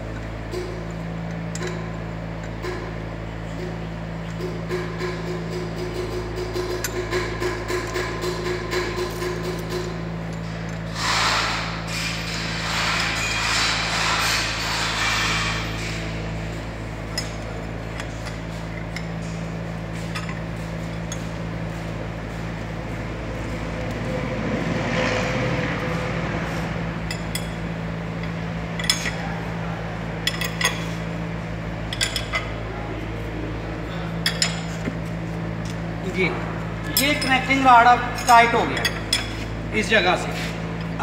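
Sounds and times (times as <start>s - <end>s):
steady hum: 0.0s - 41.0s
hand tools clinking on metal: 36.9s - 39.4s.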